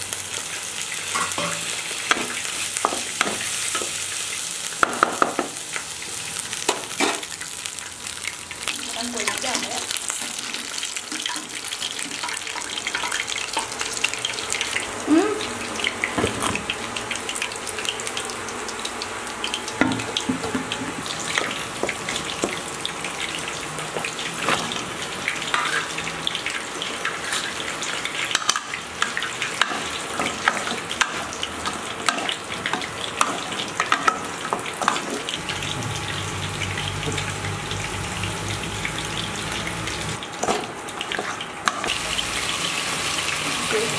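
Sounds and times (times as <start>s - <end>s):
oil sizzling in a pan: 0.0s - 43.9s
metal utensils scraping a pan: 25.5s - 26.0s, 27.0s - 27.7s.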